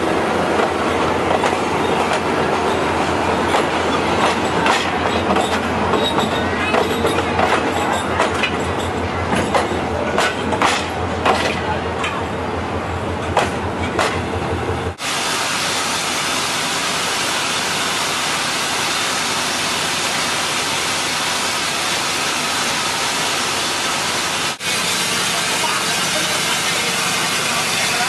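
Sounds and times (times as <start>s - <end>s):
train coach rumbling past: 0.0s - 28.0s
wheels clicking over rail joints: 3.4s - 12.3s
steam hissing: 15.0s - 28.0s.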